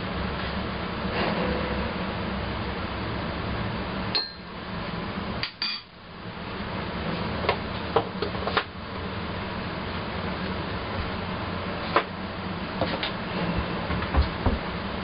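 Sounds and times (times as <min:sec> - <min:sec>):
steady background hum: 0:00.0 - 0:15.0
crockery and spoon clinking: 0:04.2 - 0:04.5.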